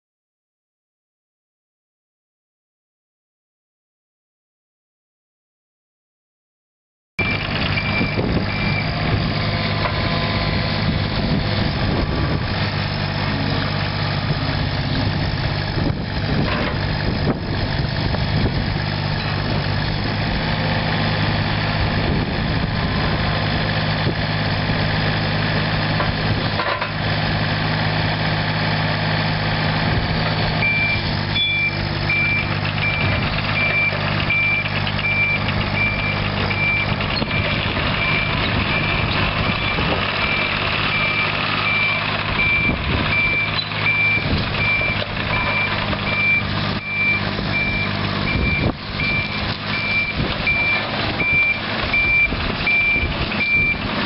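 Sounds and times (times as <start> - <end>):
diesel engine running: 7.2 - 54.0
short alarm beeps: 30.6 - 36.9.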